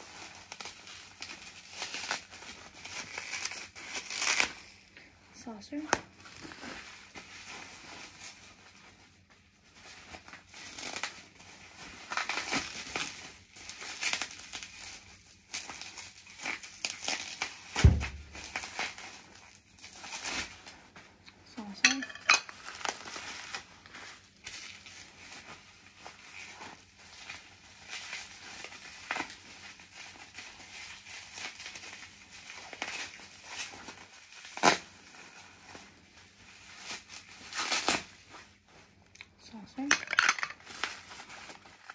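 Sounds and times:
bubble wrap crinkling: 0.0 - 41.9
dull thump: 17.8 - 18.4.

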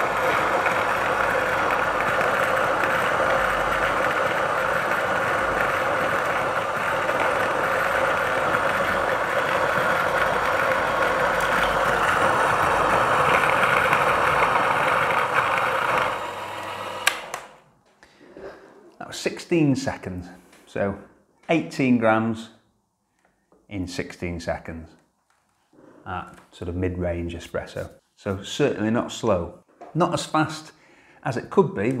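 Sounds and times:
coffee grinder grinding beans: 0.0 - 17.6
grinder motor hum: 0.0 - 17.6.

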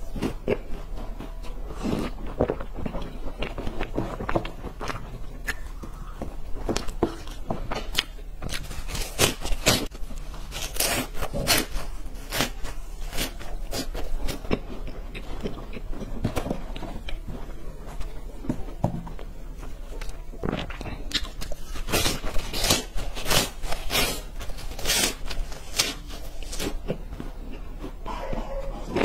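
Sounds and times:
chewing crunchy food: 0.0 - 29.0.

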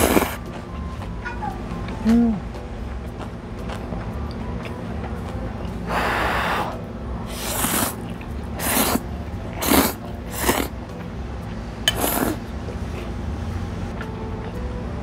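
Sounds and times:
noodles slurped: 0.0 - 0.4, 7.3 - 10.8, 11.9 - 12.4.

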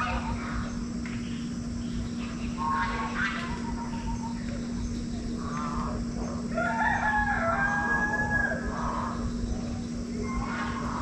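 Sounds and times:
steady low hum: 0.0 - 11.0
rooster crowing: 6.5 - 9.1.

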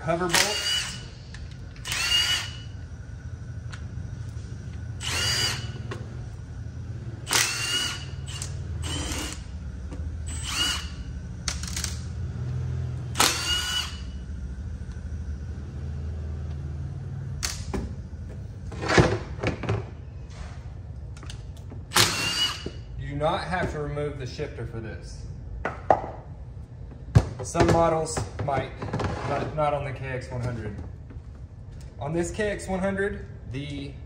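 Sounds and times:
steady low hum: 0.0 - 34.0
power driver motor whine: 0.3 - 18.5, 21.9 - 22.9.

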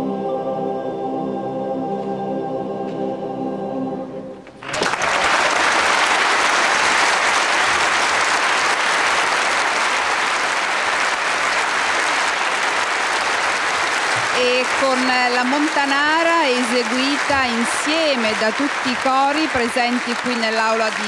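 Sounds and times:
choir singing sustained chord: 0.0 - 4.5.

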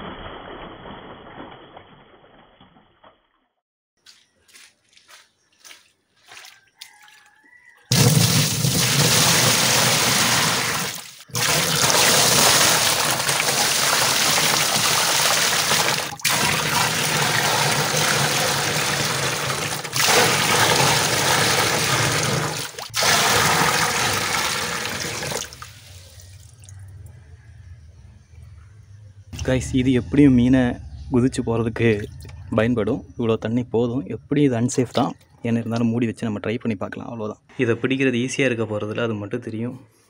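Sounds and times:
water pouring into plastic box: 7.9 - 26.7.

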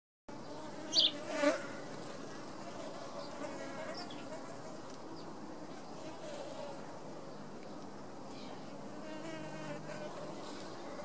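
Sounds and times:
insect buzzing: 0.5 - 1.9.

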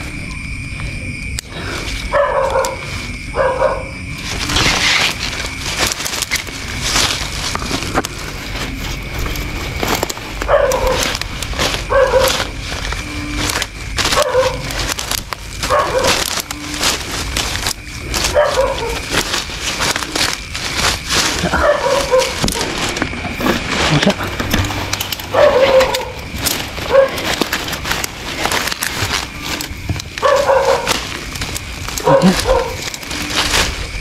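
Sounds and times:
dog barking: 2.1 - 4.0, 10.4 - 11.2, 11.8 - 12.6, 14.1 - 14.8, 15.6 - 16.3, 18.2 - 19.2, 21.4 - 22.8, 25.3 - 26.2, 26.8 - 27.4, 30.2 - 31.1, 32.0 - 33.0
rustling clicks: 4.1 - 34.0.

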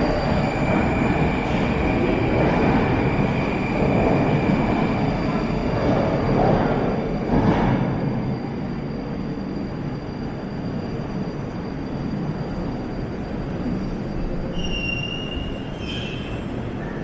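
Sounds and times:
metro train rumbling past: 0.0 - 17.0
wheel squeal: 13.6 - 17.0.

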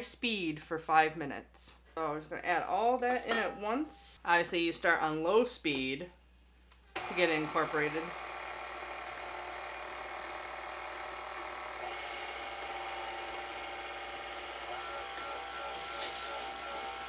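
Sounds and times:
stand mixer running: 7.0 - 17.0.

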